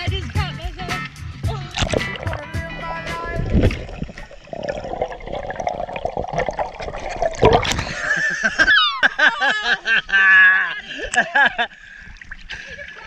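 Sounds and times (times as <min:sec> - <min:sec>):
underwater gurgling and bubbling: 0:01.6 - 0:08.1
loud splash: 0:01.7 - 0:08.2.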